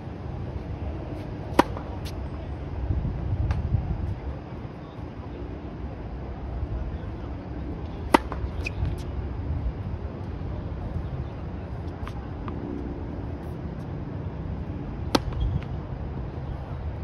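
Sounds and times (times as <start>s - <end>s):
low outdoor rumble: 0.0s - 17.0s
tennis racket striking ball: 1.5s - 2.2s, 8.1s - 8.7s.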